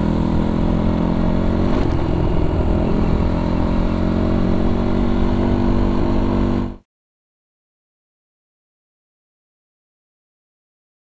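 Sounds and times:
motorcycle engine running: 0.0 - 6.8.

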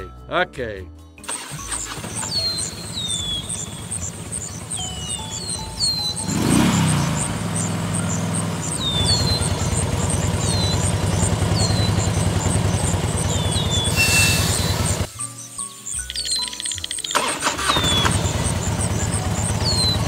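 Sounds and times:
tractor engine chugging: 1.2 - 15.1, 16.1 - 20.0
falling bird chirps: 1.3 - 20.0
brief hiss: 13.9 - 15.0.

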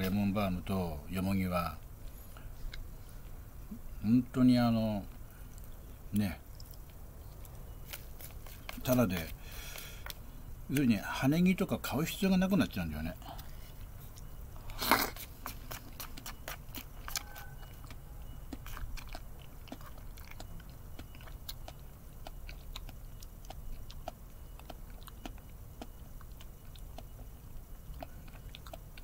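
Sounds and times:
person chewing with smacks: 2.3 - 4.0, 6.5 - 10.2, 13.2 - 29.0.

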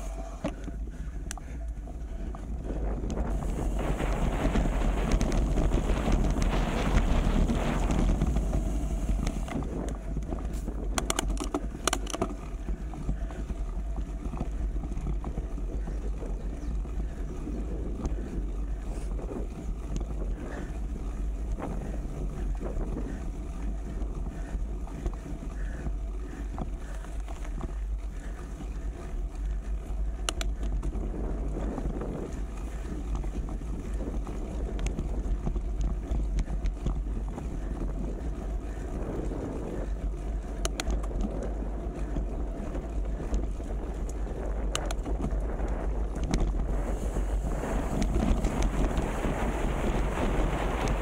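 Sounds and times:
wind buffeting microphone: 0.0 - 51.0
sharp clicks: 10.9 - 12.4, 30.2 - 30.8.

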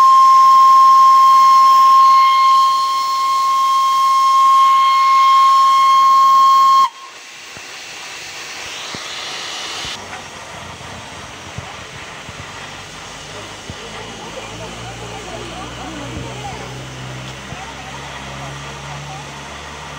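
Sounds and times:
steam locomotive whistle: 0.0 - 7.4
steam hissing: 0.0 - 19.9.

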